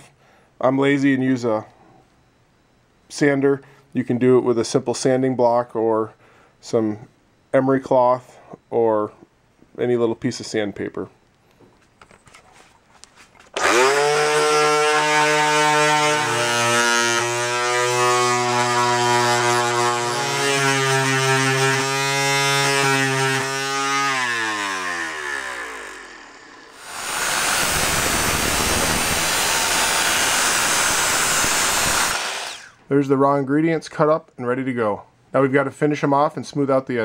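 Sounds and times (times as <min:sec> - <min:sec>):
chop saw running: 0:13.6 - 0:32.8
electric sander running: 0:13.6 - 0:32.8.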